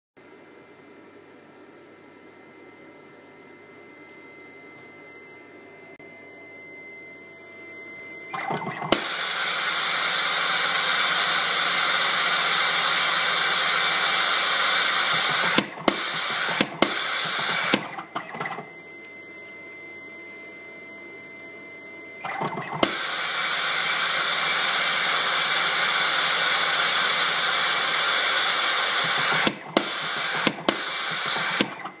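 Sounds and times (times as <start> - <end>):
cable stripping machine whirring: 8.3 - 19.2, 22.2 - 32.0.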